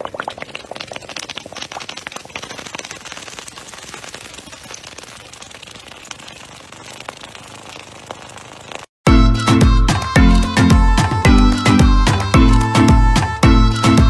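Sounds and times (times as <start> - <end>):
liquid fizzing in a plastic cup: 0.0 - 8.9.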